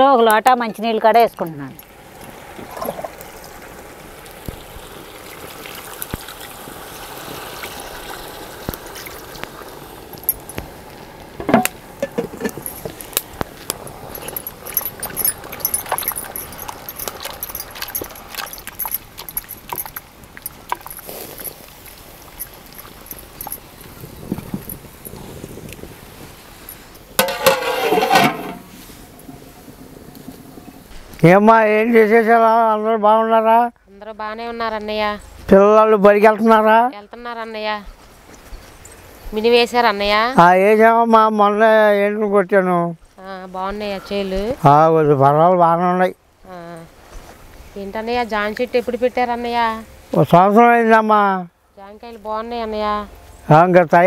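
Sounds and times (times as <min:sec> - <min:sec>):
water pouring into a pot: 0:01.8 - 0:12.8
spoon clicking and scraping pot: 0:27.2 - 0:28.6
metal lid set on pot: 0:27.2 - 0:28.7.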